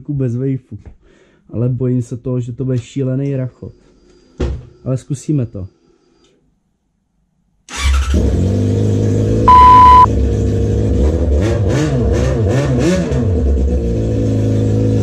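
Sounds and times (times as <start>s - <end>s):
motorcycle engine revving: 7.8s - 9.4s
loud one-tone beep: 9.5s - 10.1s.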